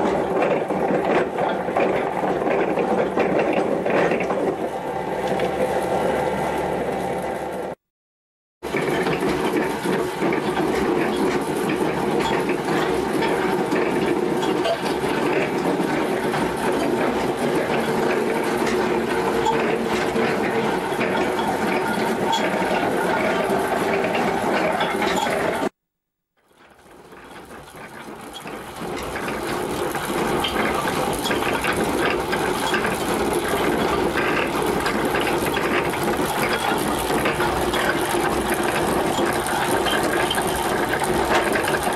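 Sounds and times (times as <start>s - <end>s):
coal stoker motor whirring and clattering: 0.0s - 7.8s, 8.6s - 25.8s, 26.4s - 41.9s.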